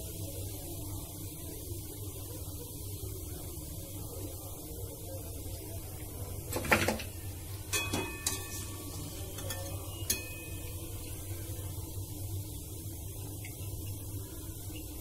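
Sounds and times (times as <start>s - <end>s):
low steady hum: 0.0s - 15.0s
metal utensils clinking on frying pan: 7.7s - 10.9s.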